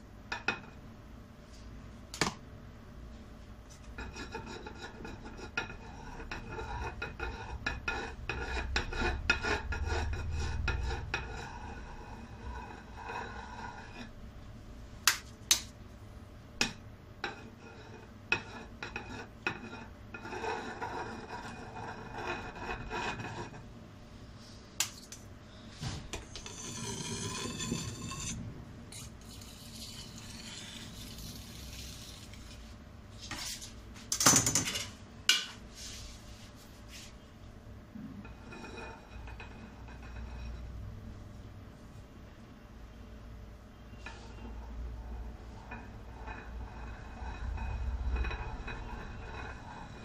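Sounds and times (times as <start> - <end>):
palette knife scraping frosting: 29.0 - 32.6.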